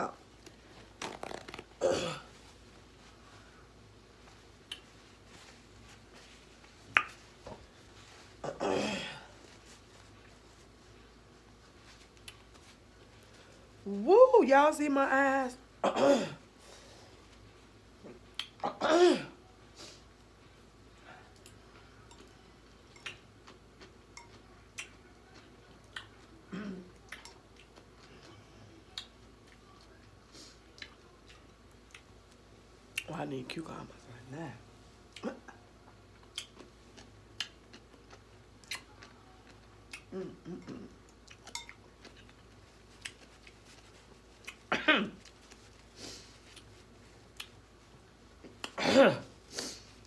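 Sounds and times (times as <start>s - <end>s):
person eating: 0.0s - 2.6s, 21.2s - 33.1s, 35.1s - 48.8s
person chewing and picking food: 0.0s - 8.6s, 9.2s - 13.8s, 17.1s - 18.8s, 20.0s - 33.1s, 34.9s - 50.0s.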